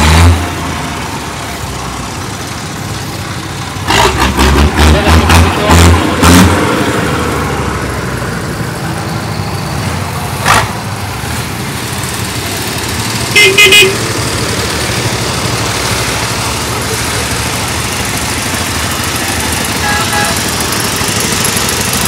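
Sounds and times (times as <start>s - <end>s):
tractor engines chugging: 0.0s - 22.0s
vehicle horn short toots: 13.3s - 14.0s, 19.8s - 20.4s.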